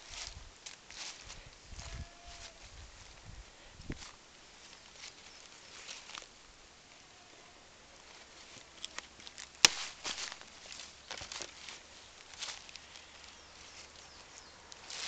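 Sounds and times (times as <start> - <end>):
footsteps in dry leaves: 0.0 - 6.4, 8.0 - 15.0
twig cracking: 8.8 - 13.4.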